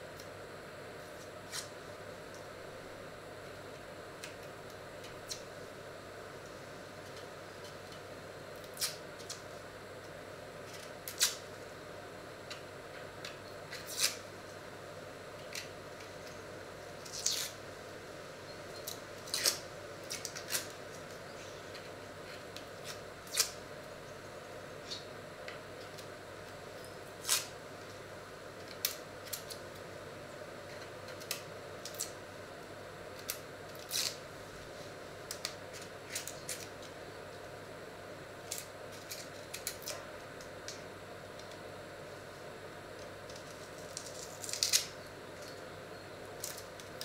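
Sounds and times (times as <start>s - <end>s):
faint steady hum: 0.0s - 47.0s
onion skin crackling: 33.2s - 34.2s, 43.3s - 45.5s.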